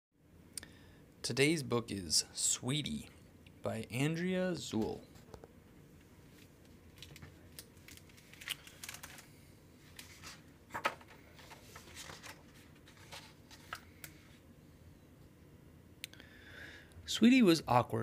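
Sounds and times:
book pages turning: 0:09.9 - 0:14.2.

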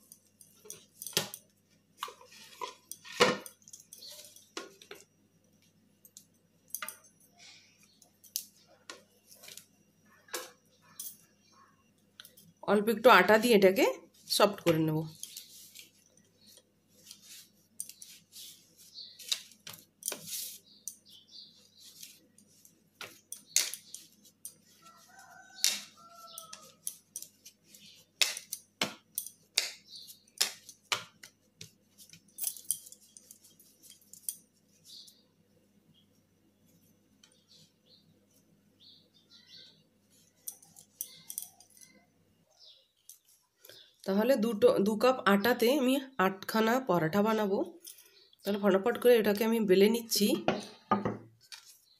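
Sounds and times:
hands kneading dough on a plate: 0:14.2 - 0:35.2.

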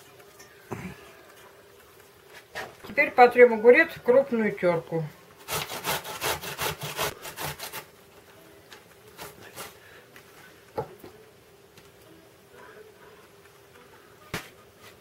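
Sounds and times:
cucumber grating on metal grater: 0:05.4 - 0:07.9, 0:09.2 - 0:09.8.

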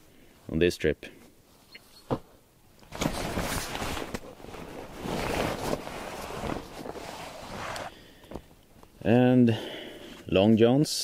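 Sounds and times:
clothing rustling: 0:01.5 - 0:09.0.

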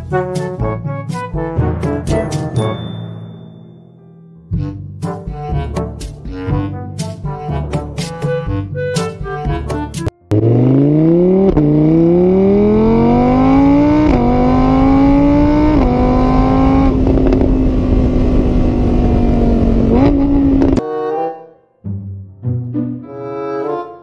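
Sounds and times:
car engine accelerating: 0:10.3 - 0:20.8.

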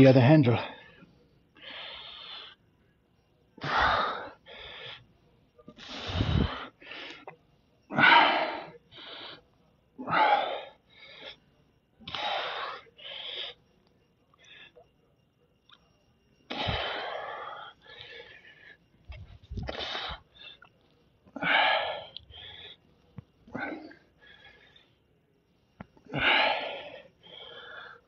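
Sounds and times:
man breathing hard: 0:00.6 - 0:02.7, 0:03.6 - 0:05.2, 0:05.8 - 0:07.3, 0:07.9 - 0:13.7, 0:16.5 - 0:20.7, 0:21.4 - 0:24.9, 0:26.0 - 0:28.0.

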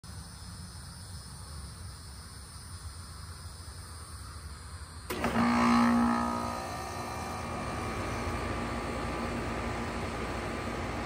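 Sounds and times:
compressor electric hum: 0:02.2 - 0:11.0.

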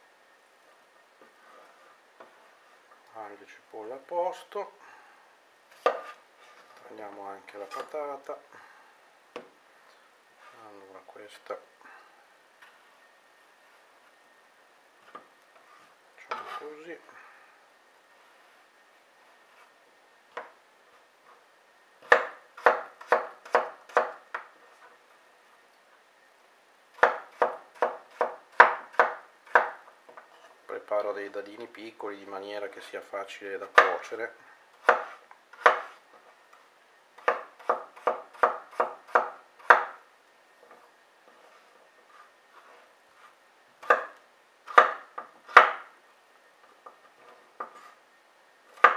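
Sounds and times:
knife chopping on wooden board: 0:05.8 - 0:06.2, 0:22.0 - 0:24.5, 0:27.0 - 0:29.8, 0:33.7 - 0:34.0, 0:34.8 - 0:36.0, 0:37.2 - 0:40.0, 0:43.8 - 0:45.9.

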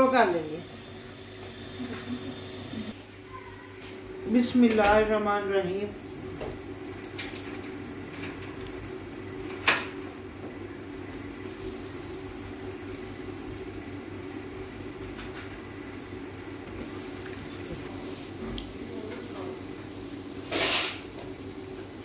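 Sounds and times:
food deep-frying in hot oil: 0:05.9 - 0:22.0.

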